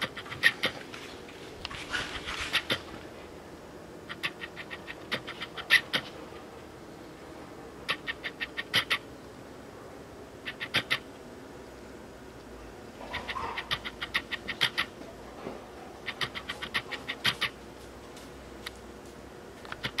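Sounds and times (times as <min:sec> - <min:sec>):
dog claws clicking on concrete: 0:00.0 - 0:02.8, 0:04.1 - 0:06.1, 0:16.0 - 0:17.6.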